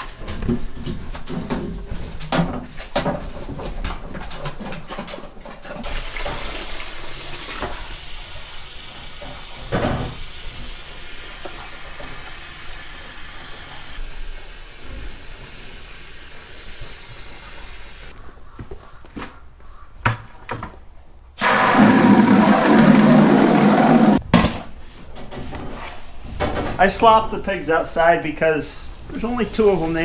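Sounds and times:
water running from hose: 5.8 - 18.1, 21.4 - 24.2.

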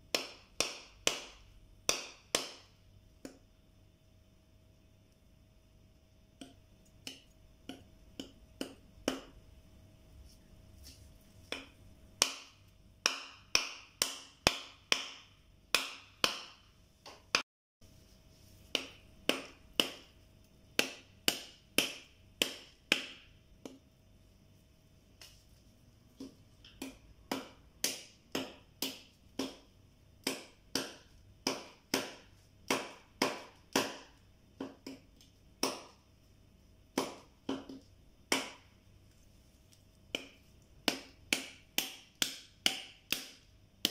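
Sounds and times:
knife chopping coconut husk: 0.1 - 3.4, 6.4 - 9.4, 11.4 - 17.4, 18.6 - 23.8, 26.2 - 36.0, 36.9 - 38.7, 40.1 - 43.9.

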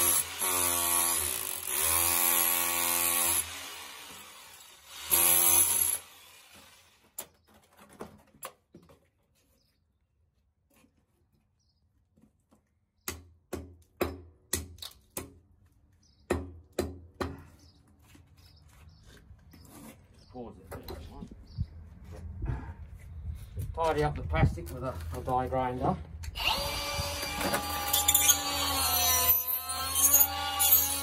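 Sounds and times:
rotary hammer chiselling concrete: 0.0 - 6.8
hammer striking concrete block: 13.0 - 15.4, 16.2 - 17.4.

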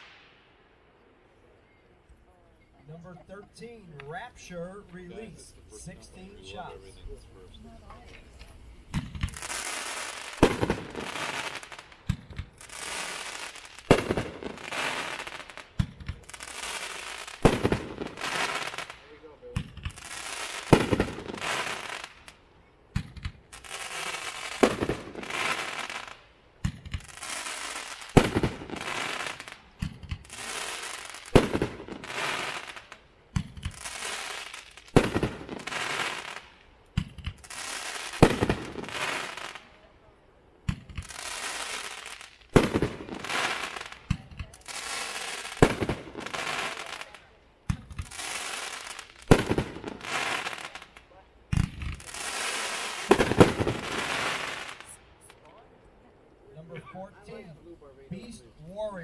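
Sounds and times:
sparkling firework hiss: 0.0 - 0.3, 8.1 - 22.4, 23.0 - 39.8, 40.7 - 51.0, 51.6 - 55.3
small firework pops: 7.9 - 39.7, 40.6 - 55.6
firework launch thumps: 8.9 - 9.4.

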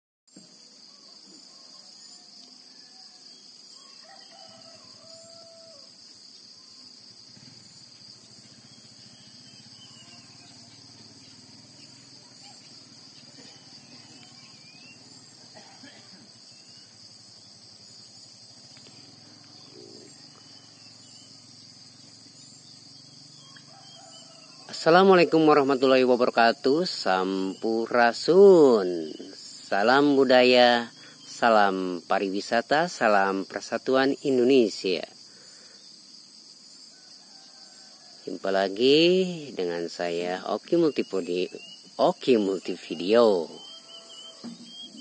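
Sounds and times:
insects chirring: 0.3 - 45.0
faint bird calls: 43.0 - 45.0.

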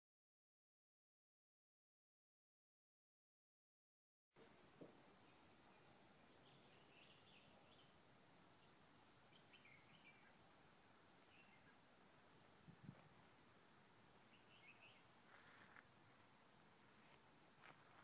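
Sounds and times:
insect chirping: 4.4 - 8.0, 8.6 - 13.3, 14.2 - 18.0.

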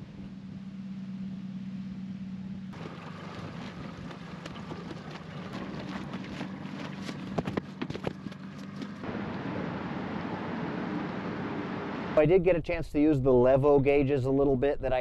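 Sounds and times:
outboard motor humming: 0.0 - 12.2
cloth flag flapping: 2.8 - 9.0.

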